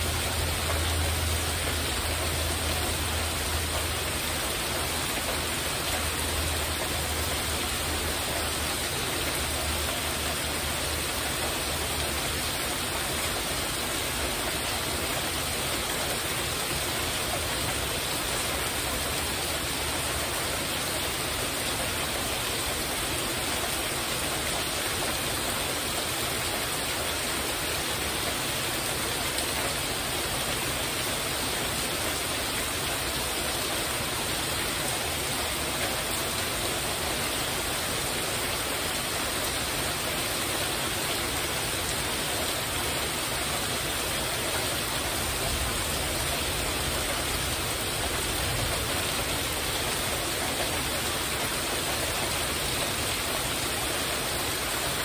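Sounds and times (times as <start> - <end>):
heavy rain on a roof: 0.0 - 55.0.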